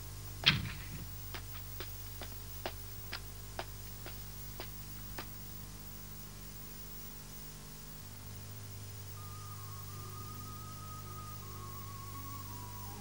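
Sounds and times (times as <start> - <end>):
low steady hum: 0.0 - 13.0
child footsteps on hard ground: 0.4 - 5.4.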